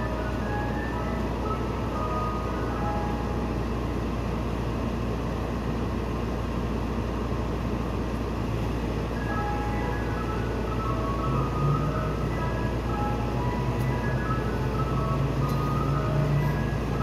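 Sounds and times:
ice cream truck chime tune: 0.0s - 4.7s, 8.7s - 17.0s
truck engine rumbling: 0.0s - 17.0s.

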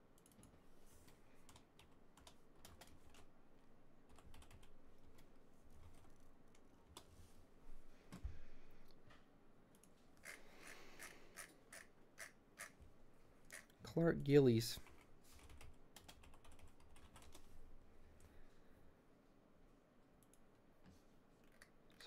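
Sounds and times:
typing on computer keyboard: 1.5s - 3.3s, 4.1s - 5.2s, 14.9s - 17.5s.

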